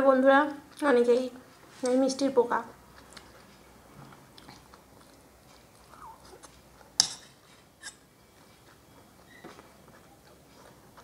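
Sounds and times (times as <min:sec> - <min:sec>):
person eating mouth sounds: 0:02.9 - 0:07.0.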